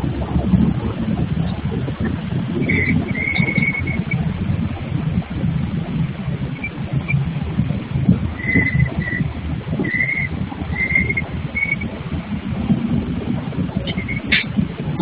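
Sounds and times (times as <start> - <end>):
high bird chirps: 2.6 - 4.2, 8.4 - 9.2, 9.9 - 11.8.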